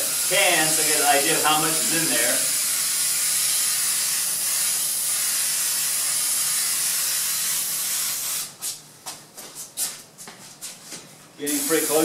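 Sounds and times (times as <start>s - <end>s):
aerosol spray hiss: 1.7s - 8.5s, 11.5s - 12.0s.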